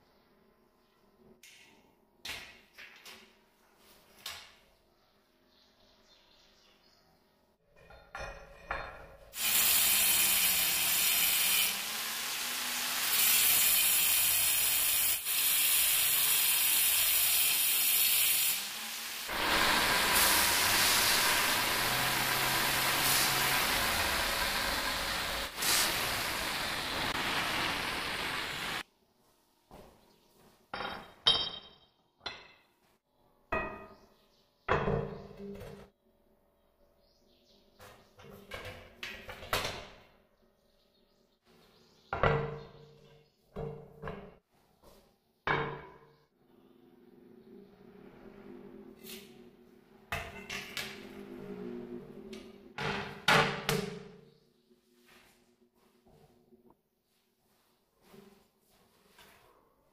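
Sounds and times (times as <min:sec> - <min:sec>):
angle grinder grinding stone: 0:09.4 - 0:28.8.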